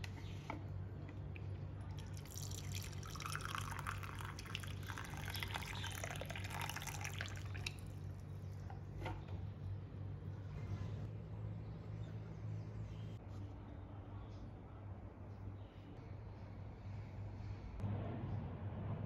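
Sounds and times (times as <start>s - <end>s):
water drip: 1.3s - 8.1s
water pouring into ceramic mug: 1.9s - 8.2s.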